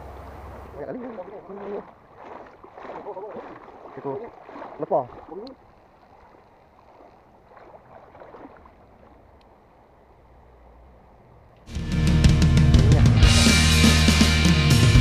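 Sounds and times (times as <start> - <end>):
flowing river water: 0.0 - 10.5, 12.7 - 13.8
rock music with drums: 11.7 - 15.0.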